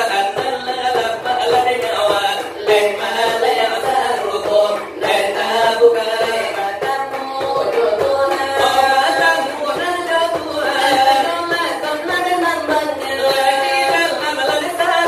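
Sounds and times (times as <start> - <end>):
voices chanting devotional singing: 0.0 - 15.0.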